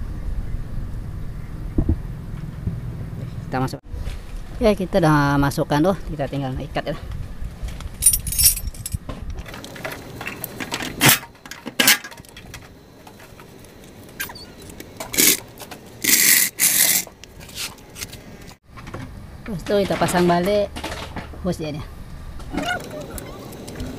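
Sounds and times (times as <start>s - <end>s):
metallic clinks of tools: 8.0s - 9.0s.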